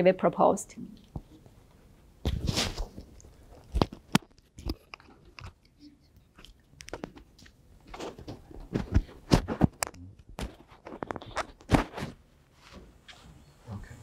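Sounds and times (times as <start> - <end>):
microphone handling thumps and rustling: 2.2 - 3.1, 7.9 - 12.9.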